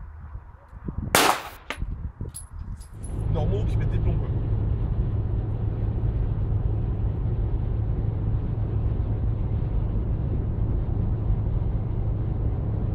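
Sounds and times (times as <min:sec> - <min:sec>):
car cabin road and engine rumble: 0:02.8 - 0:12.9.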